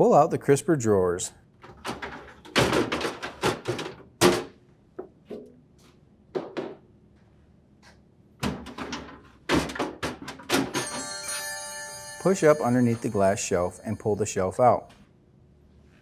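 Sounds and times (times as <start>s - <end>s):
plastic drawers clattering on rails: 1.7s - 4.5s.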